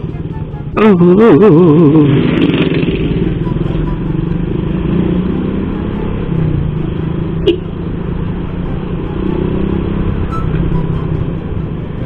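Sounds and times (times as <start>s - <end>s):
motorcycle engine running: 0.0s - 12.0s
road and wind rumble: 0.0s - 12.0s.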